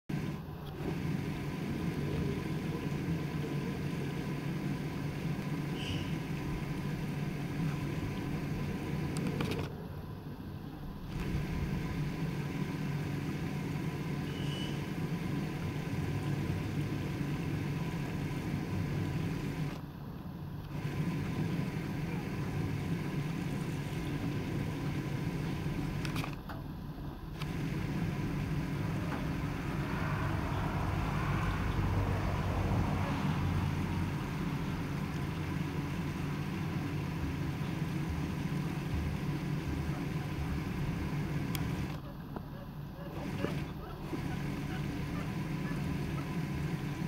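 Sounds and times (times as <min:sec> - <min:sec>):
faint high chirp: 0:05.7 - 0:06.2, 0:14.2 - 0:14.9.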